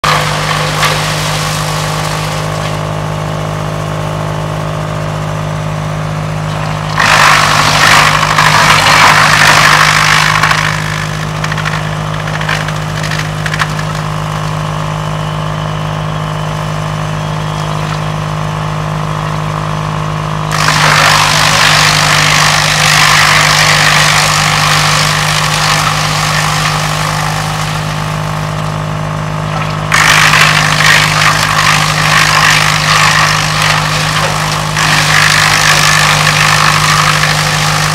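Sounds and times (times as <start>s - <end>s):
loud chipping of branches: 0.0s - 2.8s, 6.6s - 14.5s, 20.5s - 28.7s, 29.5s - 37.9s
wood chipper running: 0.0s - 37.9s.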